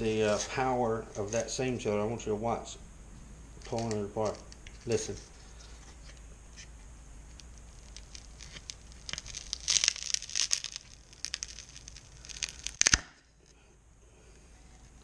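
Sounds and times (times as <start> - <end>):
sealer crackling and tearing: 3.6 - 6.7, 7.3 - 13.5.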